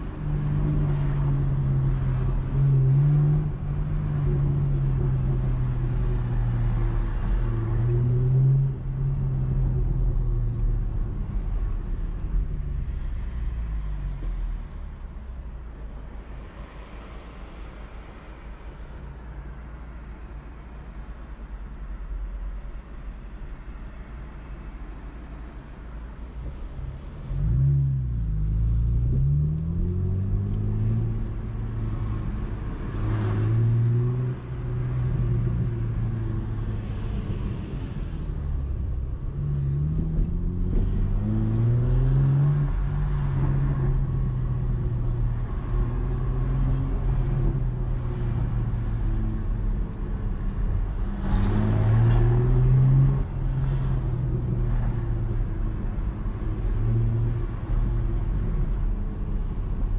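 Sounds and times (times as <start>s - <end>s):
car engine revving and shifting: 27.0s - 59.9s.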